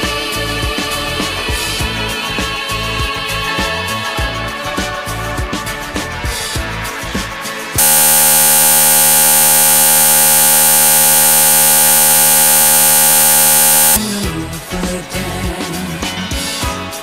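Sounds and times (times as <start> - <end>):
steady electronic buzz: 7.8 - 14.0
music: 14.1 - 17.0.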